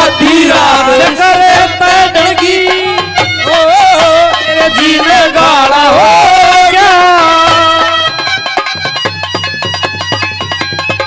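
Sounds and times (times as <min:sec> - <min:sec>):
hand drum beat: 0:00.0 - 0:11.0
harmonium melody: 0:00.0 - 0:11.0.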